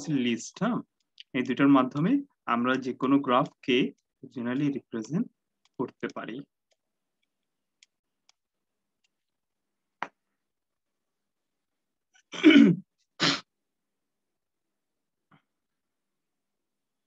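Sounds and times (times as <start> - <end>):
person sneezing: 12.3 - 13.5.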